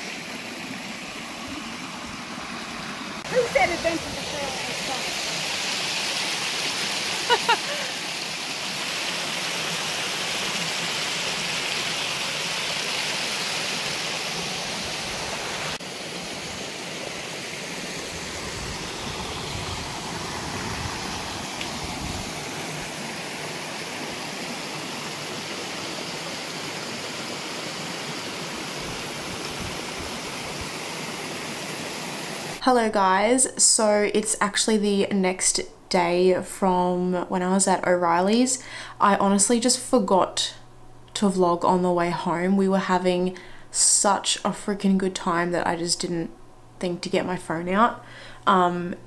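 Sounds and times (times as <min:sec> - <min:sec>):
water rushing over rocks: 0:00.0 - 0:32.6.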